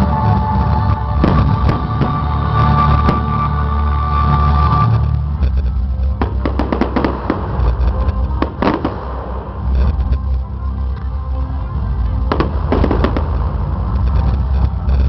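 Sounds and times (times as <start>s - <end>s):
bass-heavy music: 0.0s - 15.0s
fireworks bangs and crackles: 0.0s - 15.0s.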